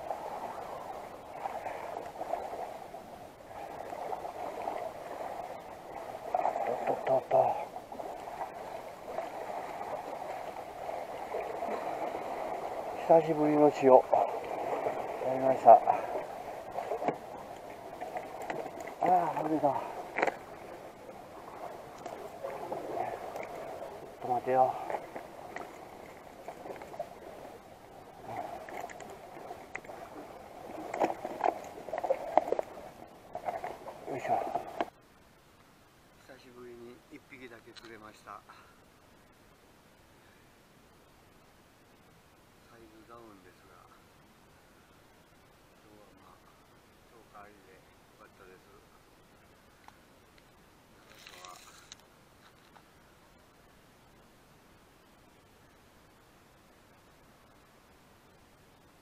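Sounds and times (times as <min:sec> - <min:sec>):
sea water sloshing among blocks: 0:00.0 - 0:34.9.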